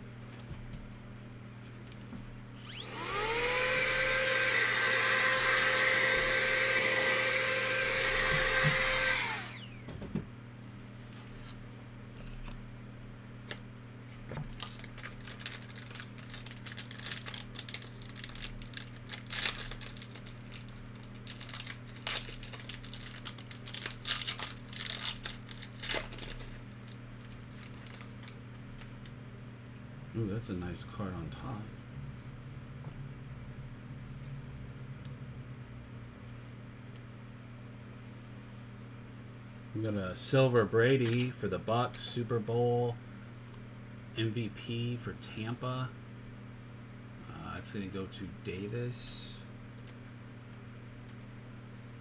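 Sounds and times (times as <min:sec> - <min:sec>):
small electric motor whining: 0:02.6 - 0:09.9
card pack tearing and rustling: 0:14.4 - 0:29.0.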